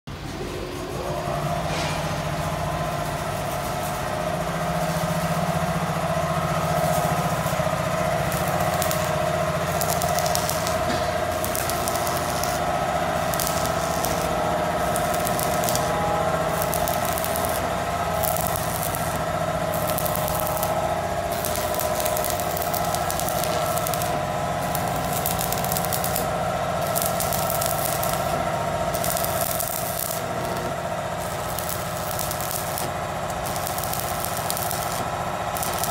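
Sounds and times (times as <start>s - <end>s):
steady mechanical hum: 0.1s - 35.9s
arc welding crackling: 0.3s - 35.9s.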